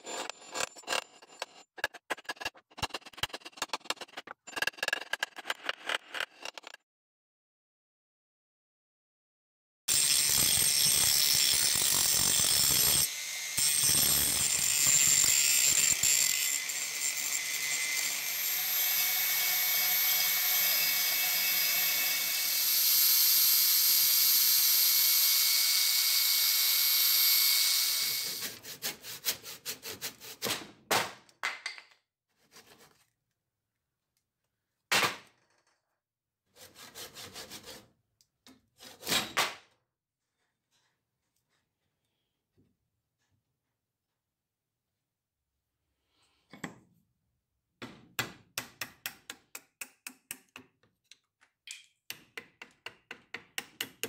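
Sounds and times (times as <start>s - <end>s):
hand saw cutting wood: 9.9s - 22.8s, 27.8s - 30.5s, 36.5s - 37.9s, 38.8s - 39.4s.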